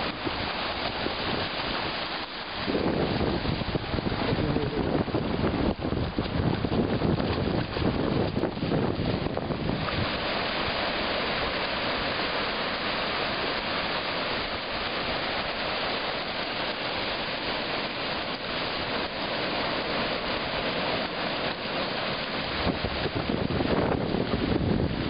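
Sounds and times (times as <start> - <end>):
ocean waves breaking on beach: 0.0 - 25.0.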